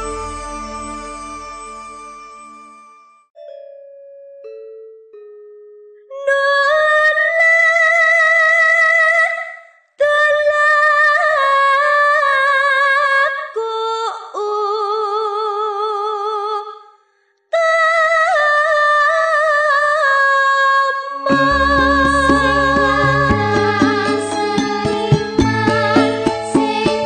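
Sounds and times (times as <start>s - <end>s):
woman singing long wavering notes: 6.1s - 9.4s, 17.6s - 27.0s.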